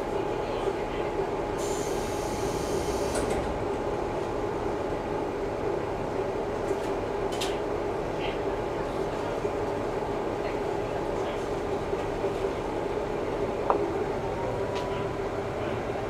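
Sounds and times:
railcar engine running: 0.0s - 16.0s.

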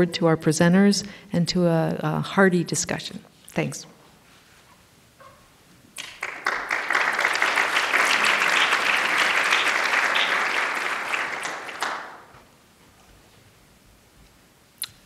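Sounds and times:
audience applauding: 6.0s - 12.4s.

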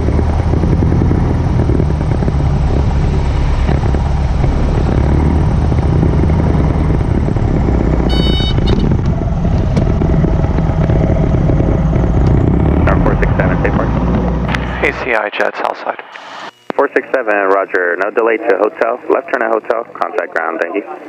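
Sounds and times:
airplane engine idling: 0.0s - 21.0s
short high beep: 8.1s - 8.8s.

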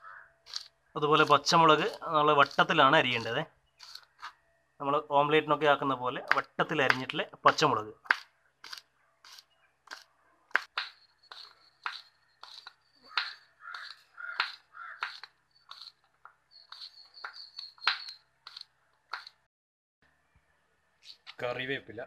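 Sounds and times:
knife chopping on cutting board: 8.0s - 15.9s, 16.7s - 19.4s.

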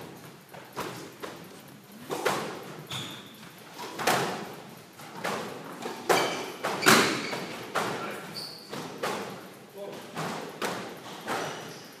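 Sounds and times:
sneakers squeaking on hardwood: 2.6s - 4.1s, 5.2s - 9.3s, 11.1s - 11.9s
squash ball hits: 3.9s - 9.5s, 10.1s - 11.6s.

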